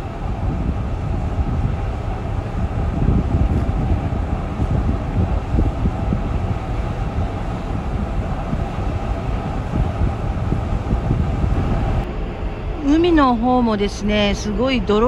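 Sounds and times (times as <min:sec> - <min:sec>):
ship machinery rumble: 0:00.0 - 0:15.0
wind buffeting microphone: 0:00.0 - 0:15.0.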